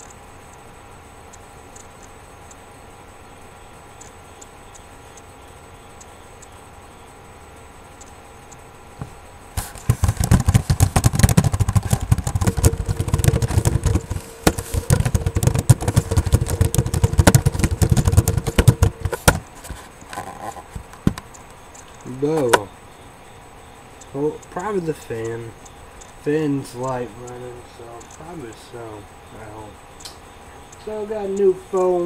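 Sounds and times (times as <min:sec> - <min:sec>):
steady hum: 0:00.0 - 0:32.0
loud clattering and knocking: 0:09.6 - 0:21.2.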